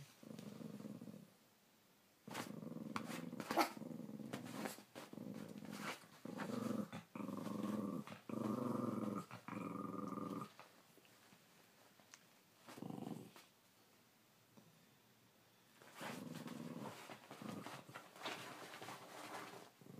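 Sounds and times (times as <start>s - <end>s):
small dog growling: 0.2s - 1.3s, 2.3s - 10.6s, 12.7s - 13.5s, 15.9s - 18.0s.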